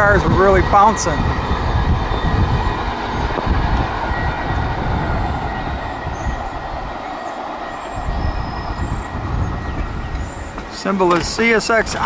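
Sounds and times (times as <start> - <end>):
freight train rumbling on rails: 0.0 - 12.0
faint train wheel squeal: 4.0 - 11.1.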